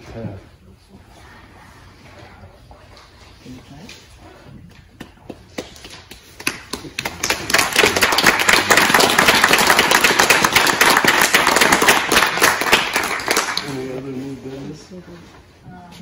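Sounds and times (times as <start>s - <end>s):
audience applauding: 6.4s - 13.9s.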